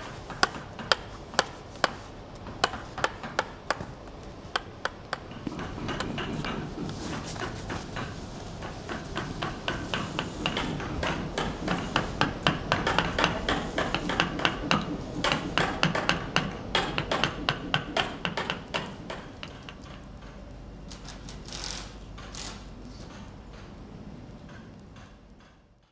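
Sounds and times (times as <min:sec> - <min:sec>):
rapid uneven knocking: 0:00.3 - 0:20.4.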